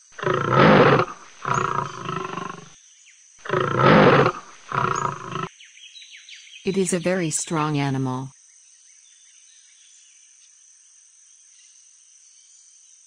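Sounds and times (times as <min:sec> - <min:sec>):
lion roaring: 0:00.0 - 0:02.7, 0:03.4 - 0:05.5.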